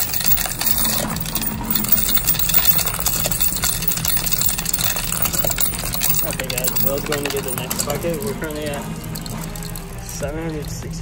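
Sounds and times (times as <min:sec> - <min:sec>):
coins rattling through machine: 0:00.0 - 0:11.0.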